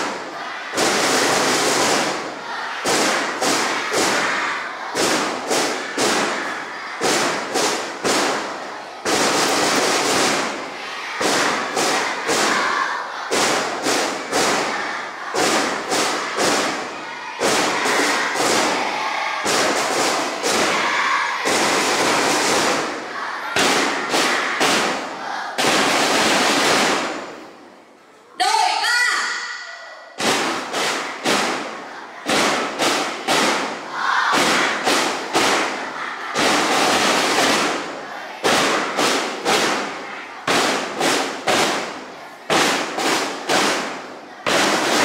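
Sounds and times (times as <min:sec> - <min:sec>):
loud thuds and bangs: 0:00.0 - 0:27.4.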